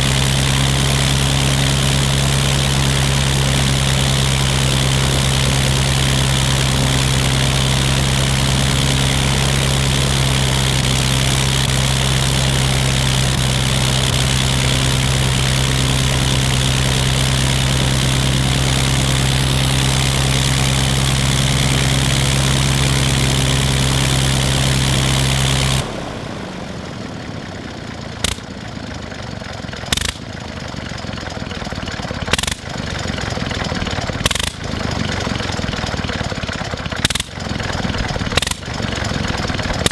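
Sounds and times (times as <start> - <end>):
rotary aero engine running: 0.0 - 39.9
sharp engine pops: 28.2 - 28.5, 29.8 - 30.3, 32.3 - 32.7, 34.1 - 34.7, 36.9 - 37.5, 38.2 - 38.8, 39.7 - 39.9.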